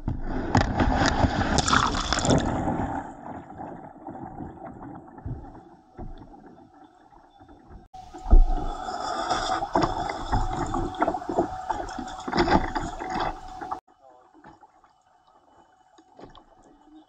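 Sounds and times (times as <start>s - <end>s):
kayak splashing into water: 0.0s - 5.0s, 8.2s - 13.8s
water lapping against hull: 0.0s - 17.0s.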